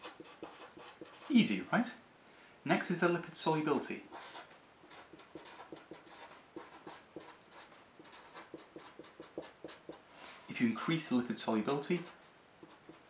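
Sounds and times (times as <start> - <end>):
marker pen scratching on paper: 0.0 - 1.5, 4.1 - 10.0, 11.7 - 13.0.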